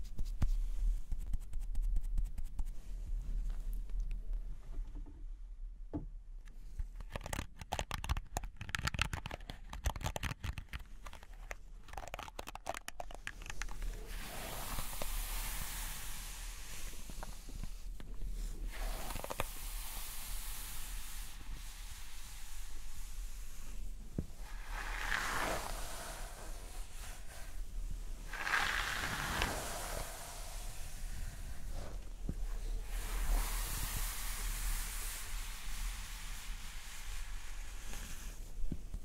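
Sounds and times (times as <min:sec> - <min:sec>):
crackly clicks and scratches: 0:00.0 - 0:05.1, 0:06.4 - 0:15.2, 0:18.9 - 0:19.6
hair rustling against microphone: 0:06.9 - 0:16.2, 0:24.3 - 0:35.4.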